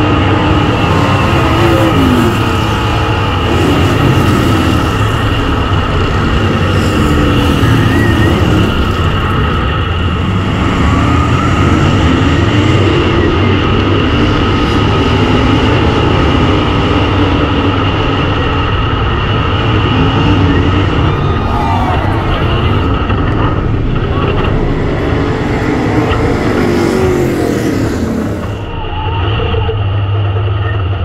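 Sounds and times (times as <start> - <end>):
chassis noise: 0.0 - 28.9
wind noise: 0.0 - 29.2
race car engine running hard: 0.0 - 31.0.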